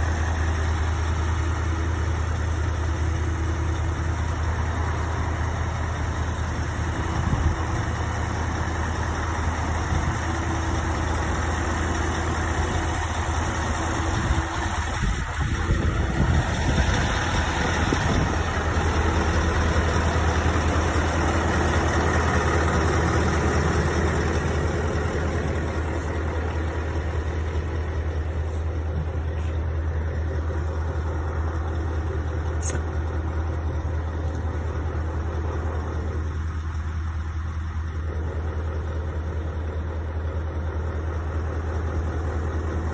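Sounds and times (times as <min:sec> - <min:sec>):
diesel truck engine idling: 0:00.0 - 0:42.9.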